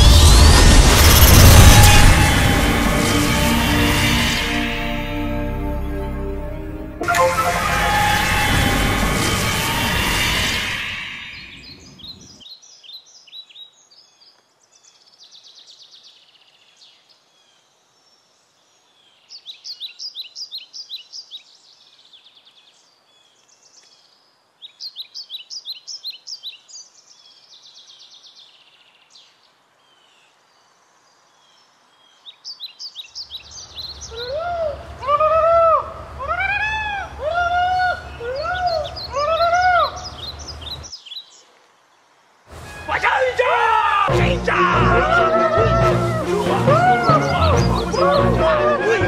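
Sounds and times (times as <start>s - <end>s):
low rumble: 0.0s - 11.4s
songbird chirping: 10.8s - 35.4s, 36.0s - 49.0s
low rising and falling bird calls: 31.2s - 42.0s, 45.4s - 48.5s.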